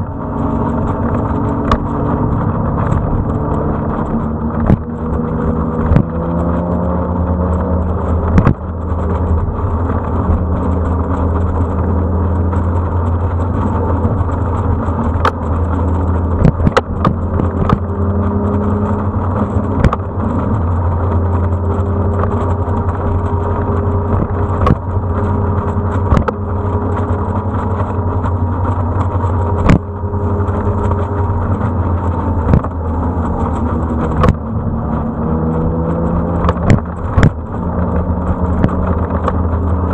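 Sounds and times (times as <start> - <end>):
vehicle engine running: 0.0 - 39.9.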